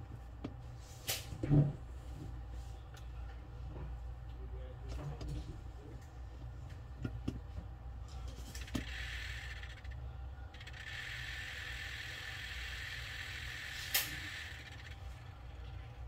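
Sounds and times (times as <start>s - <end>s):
gauge stepper motors buzzing: 8.5s - 16.0s
sharp clicks: 13.7s - 15.0s.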